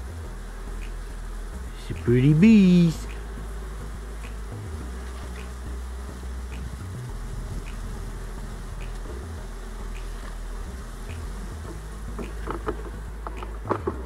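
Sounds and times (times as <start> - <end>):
bees buzzing: 0.0 - 14.0.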